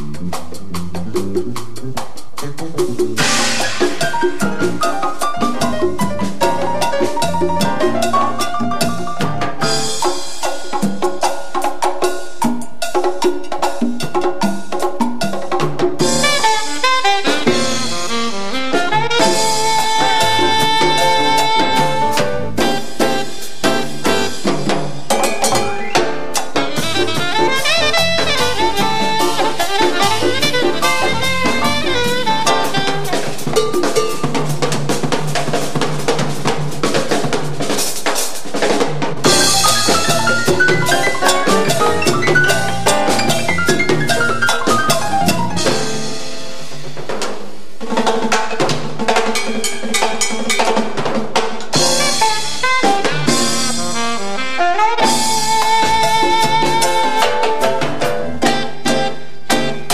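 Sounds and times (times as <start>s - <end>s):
jazz band playing: 0.0s - 59.9s
saxophone: 16.1s - 33.7s, 51.8s - 59.9s.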